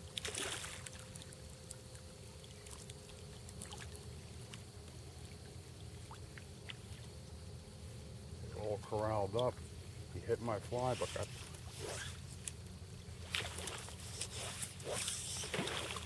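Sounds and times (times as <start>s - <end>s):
faint water drips: 0.0s - 7.5s, 8.5s - 9.7s
low steady rumble: 0.0s - 16.0s
water splash: 0.1s - 1.2s, 13.3s - 16.0s.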